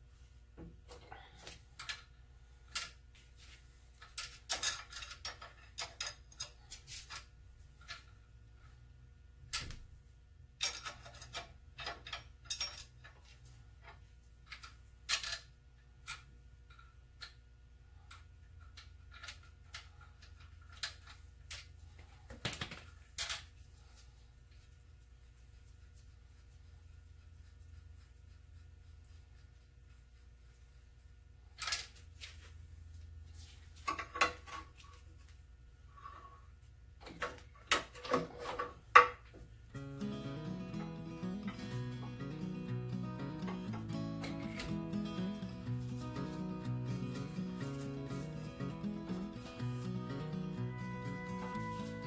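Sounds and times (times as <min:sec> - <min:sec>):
metal tools clinking: 0:04.0 - 0:08.0, 0:10.6 - 0:13.4.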